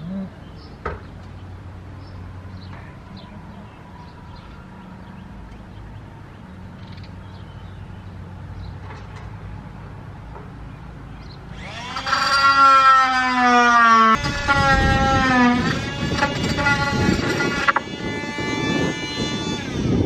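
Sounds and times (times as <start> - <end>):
electric drill whine: 11.5 - 20.0.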